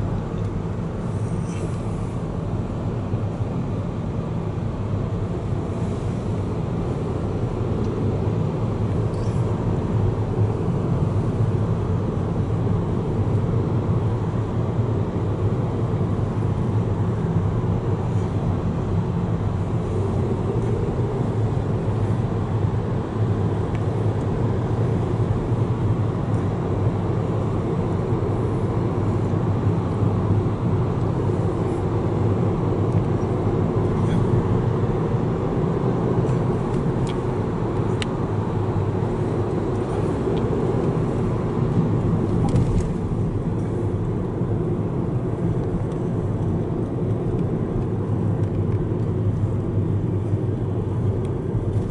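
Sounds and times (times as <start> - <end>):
car road and engine rumble: 0.0 - 51.9.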